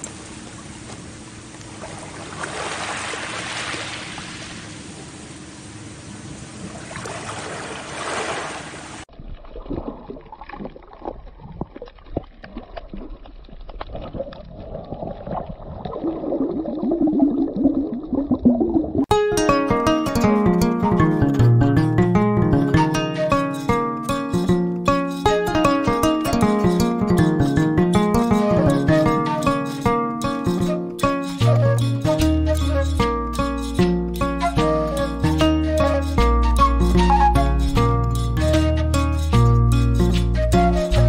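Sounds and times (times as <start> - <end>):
waves washing onto pebbles: 1.7 - 5.2, 6.4 - 9.1
underwater gurgling and bubbling: 9.2 - 19.1.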